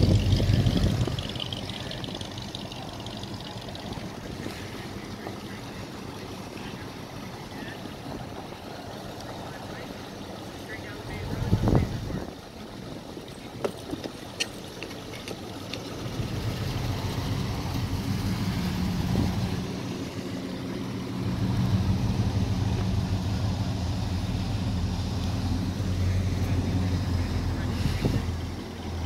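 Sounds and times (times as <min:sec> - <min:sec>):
car engines running: 0:00.0 - 0:29.0.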